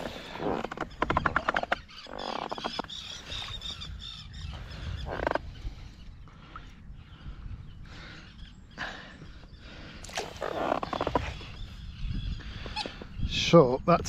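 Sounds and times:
bird calling: 0.0s - 13.3s
fish splashing and flapping: 10.0s - 11.5s.

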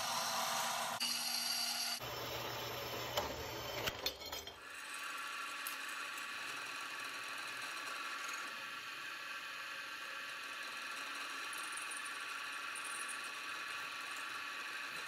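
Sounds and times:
milling machine whining cut: 0.0s - 3.7s
band saw cutting steel: 0.0s - 3.9s.

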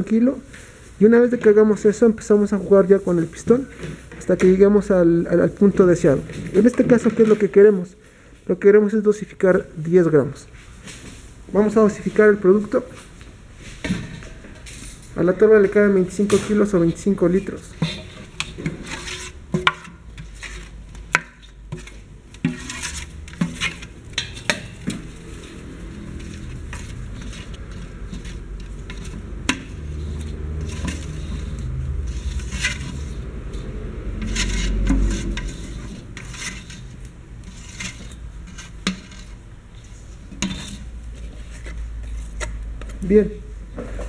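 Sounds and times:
spatulas scraping metal: 14.8s - 42.6s.

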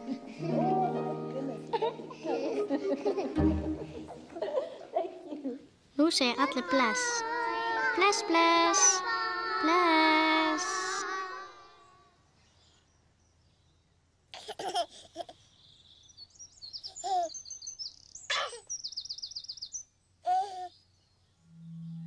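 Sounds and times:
baby giggling and cooing: 0.0s - 4.9s, 14.4s - 15.4s
birds chirping: 15.3s - 22.0s.

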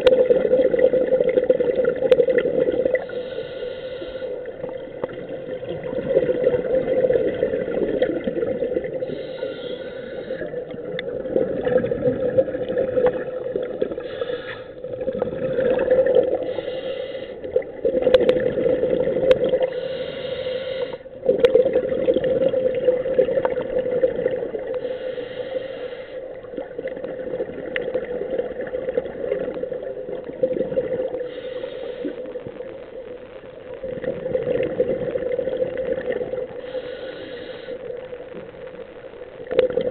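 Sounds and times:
exhaled bubbles rumbling underwater: 0.0s - 39.9s
regulator breathing hisses: 3.0s - 4.6s, 9.0s - 10.6s, 14.0s - 14.8s, 16.4s - 17.5s, 19.7s - 21.1s, 24.8s - 26.4s, 31.2s - 32.4s, 36.6s - 37.9s.

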